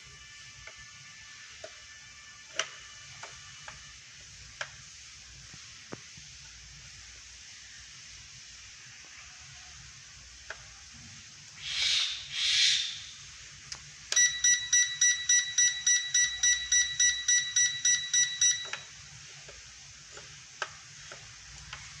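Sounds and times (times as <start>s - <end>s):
rapid electronic beeping: 14.2s - 18.8s.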